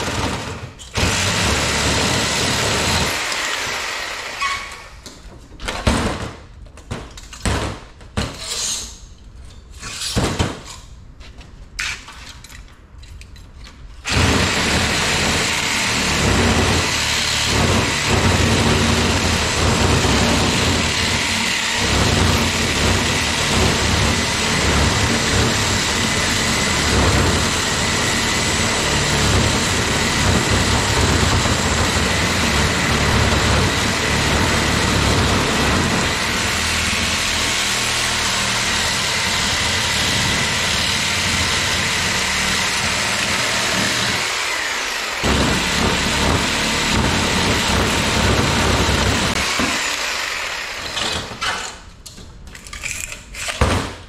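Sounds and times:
reciprocating saw cutting metal: 0.9 - 5.0, 14.1 - 51.8.

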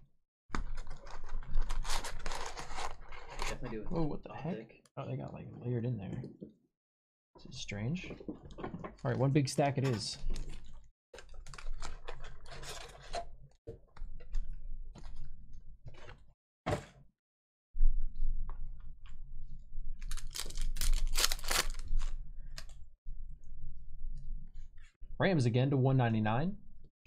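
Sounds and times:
foil packs crinkling: 20.1 - 22.1.

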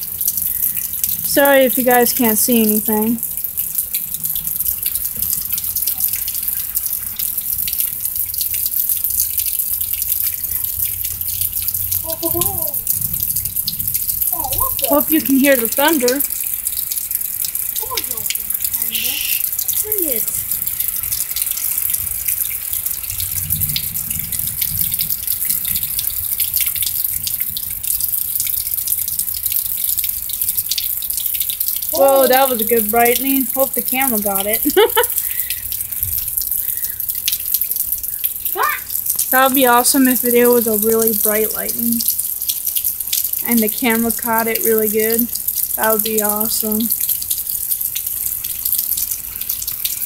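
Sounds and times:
close drips ticking: 0.0 - 50.0
heavy rain: 0.0 - 50.0
low thunder rumble: 11.8 - 15.8, 23.0 - 26.1.

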